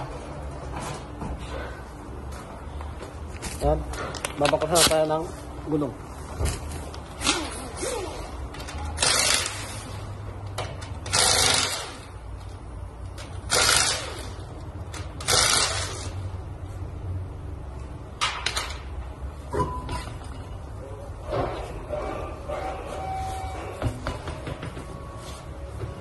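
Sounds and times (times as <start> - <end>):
low hum of shop machinery: 0.0 - 26.0
pneumatic impact wrench bursts: 9.0 - 10.0, 11.0 - 12.1, 13.3 - 16.2.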